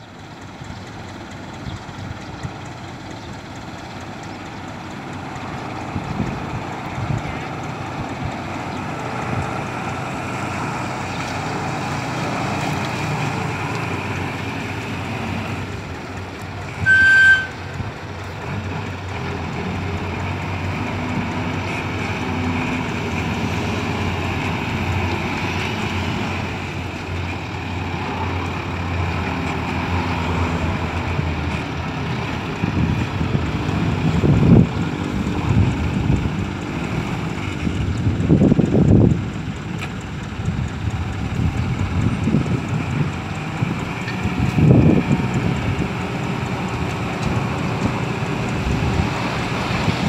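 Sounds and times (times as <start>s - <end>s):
diesel truck engine running: 0.0s - 50.0s
loud high-pitched beep: 16.8s - 17.6s.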